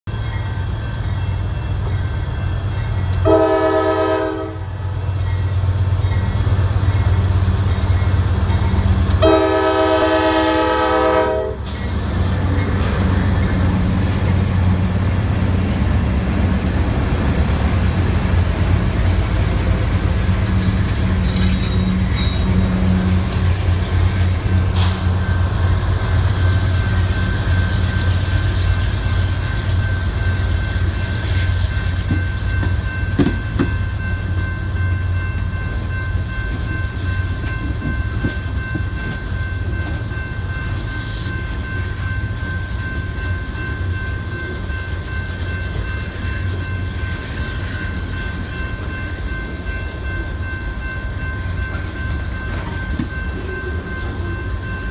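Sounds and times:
train air horn blasts: 3.2s - 4.8s, 9.2s - 12.2s.

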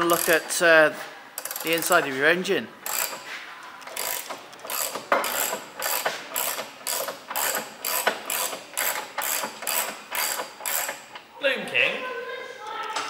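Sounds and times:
ratchet wrench clicking: 0.0s - 0.6s, 1.4s - 2.0s, 2.8s - 3.2s, 3.8s - 11.2s.

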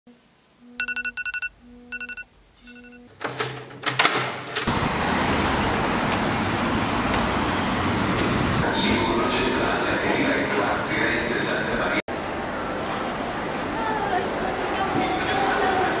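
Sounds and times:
short electronic beeps: 0.6s - 3.2s.

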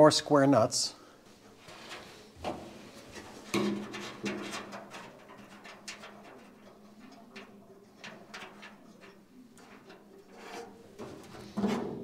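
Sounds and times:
metal rasp: 10.3s - 10.8s.

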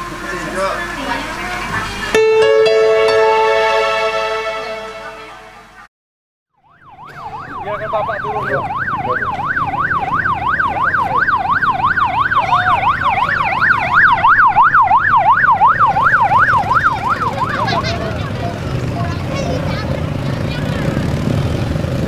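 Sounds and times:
siren on fast yelp: 6.6s - 17.9s
motorcycle engines rumbling: 6.9s - 22.0s.

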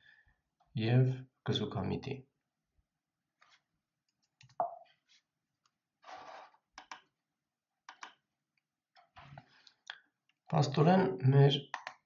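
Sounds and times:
light clicks and taps: 11.7s - 12.0s.

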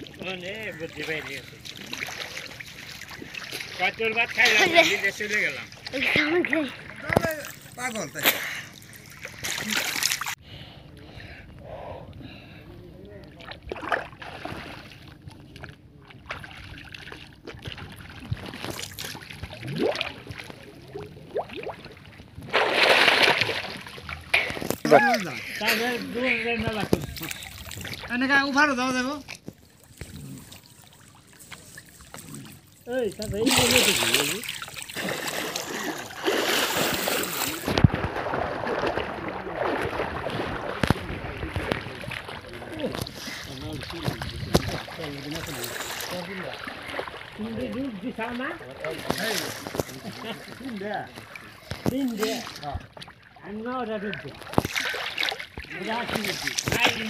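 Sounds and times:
water sloshing and gurgling: 0.0s - 57.0s
loud splash: 6.0s - 10.4s, 17.6s - 20.4s, 22.5s - 24.7s, 33.4s - 42.6s
wind rumble on microphone: 43.7s - 44.9s.

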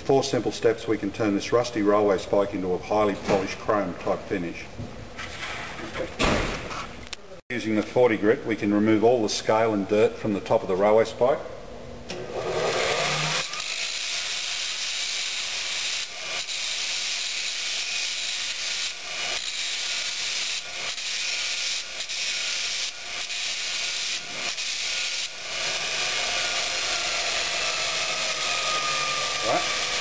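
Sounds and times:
belt grinder grinding steel: 12.4s - 30.0s.

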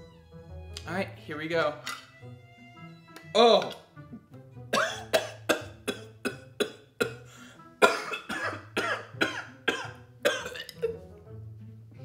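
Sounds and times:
man coughing and gagging: 4.7s - 11.0s.

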